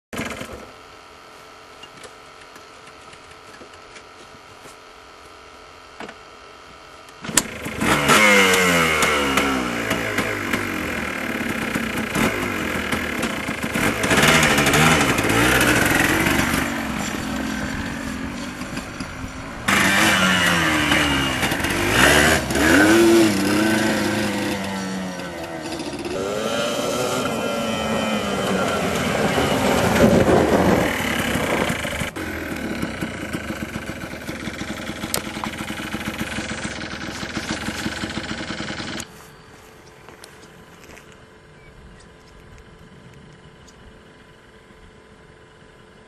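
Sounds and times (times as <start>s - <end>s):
atv engine revving: 7.2s - 39.1s.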